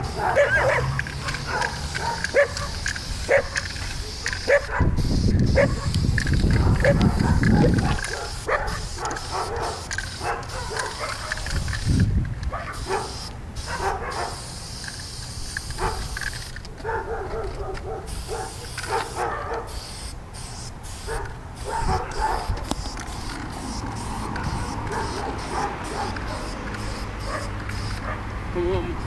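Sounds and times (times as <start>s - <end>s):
dog barking: 0.0s - 4.9s, 5.6s - 5.9s, 6.6s - 11.4s, 12.5s - 14.4s, 15.8s - 16.1s, 16.8s - 19.7s, 21.0s - 22.5s, 24.4s - 26.6s, 27.2s - 28.3s.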